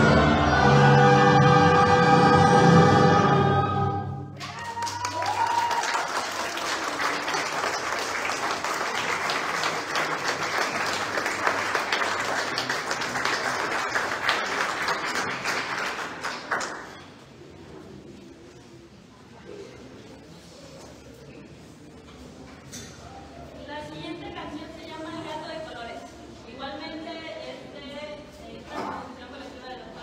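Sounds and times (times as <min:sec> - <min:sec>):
orchestra and choir chord: 0:00.0 - 0:04.4
audience applause: 0:04.4 - 0:17.2.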